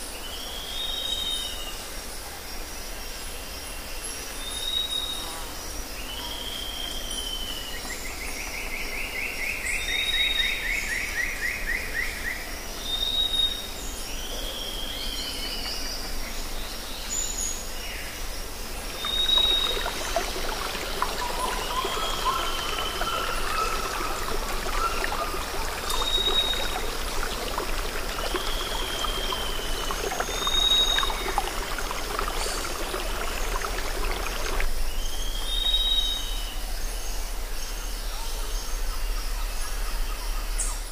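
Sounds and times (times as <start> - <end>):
bird whistled notes and calls: 19.0 - 36.3.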